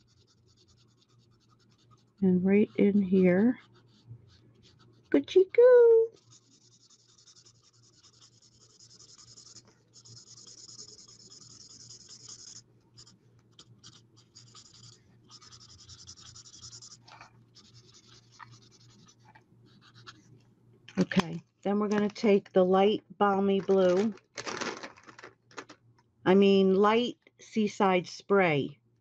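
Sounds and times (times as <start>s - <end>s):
marker scratching on card: 0.0s - 5.4s, 6.0s - 20.2s.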